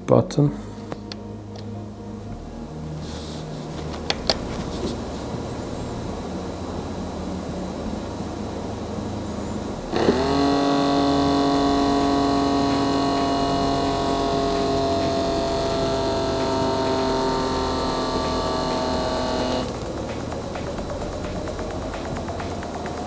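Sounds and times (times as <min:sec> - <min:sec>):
electric air pump whining: 0:09.6 - 0:23.0.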